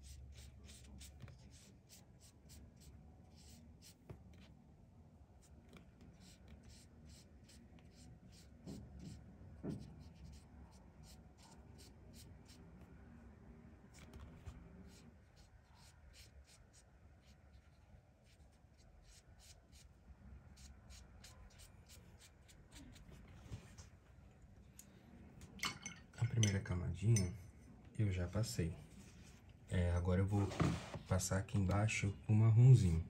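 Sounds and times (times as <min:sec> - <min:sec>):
colouring tool scratching paper: 0:00.0 - 0:04.5, 0:05.4 - 0:12.7, 0:13.9 - 0:19.9.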